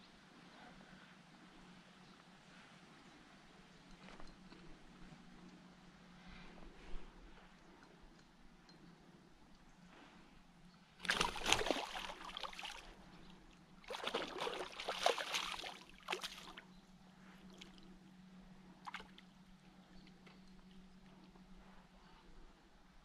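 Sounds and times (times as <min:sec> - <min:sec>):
fish thrashing and splashing water: 0:11.0 - 0:12.9, 0:13.8 - 0:16.6.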